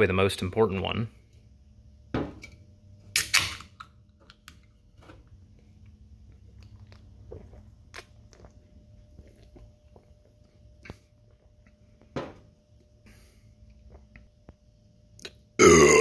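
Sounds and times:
can opening crack and fizz: 3.1 - 4.6.

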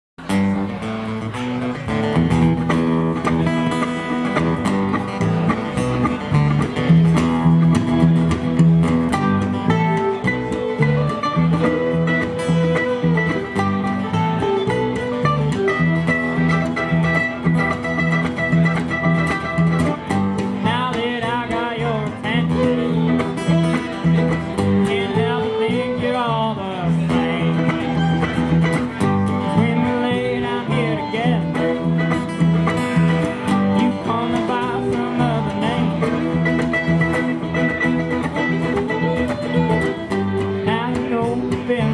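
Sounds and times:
acoustic guitar: 0.2 - 41.9
mandolin: 0.2 - 41.9
pulsing bass line: 2.2 - 41.9
person singing: 24.6 - 28.2, 29.4 - 32.1, 33.4 - 37.2, 40.5 - 41.9.

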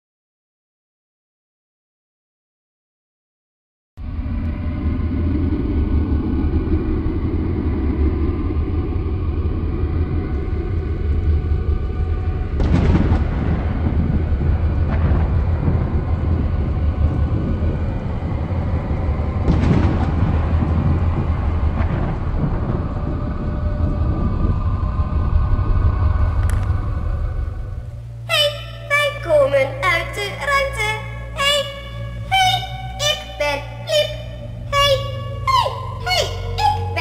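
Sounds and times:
deep thunder rumble: 4.0 - 37.0
loud thunderclaps: 10.0 - 28.0.

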